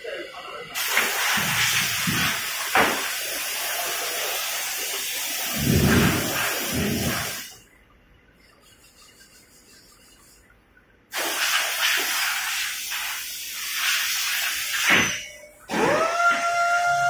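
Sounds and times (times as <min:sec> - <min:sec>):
loud hissing rush of air: 0:00.8 - 0:07.6, 0:11.1 - 0:15.0.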